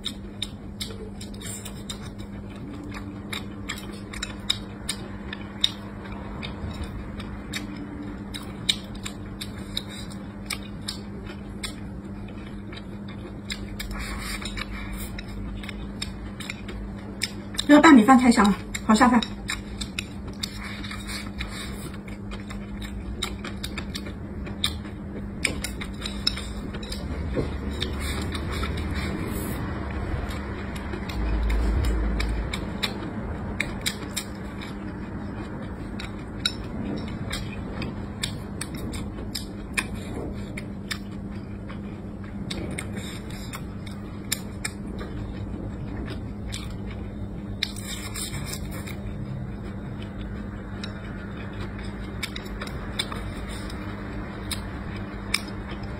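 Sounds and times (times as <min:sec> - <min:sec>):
person chewing rice: 0:00.0 - 0:17.7, 0:18.6 - 0:55.9
steady low hum: 0:00.0 - 0:55.9
low rumble: 0:24.2 - 0:47.7.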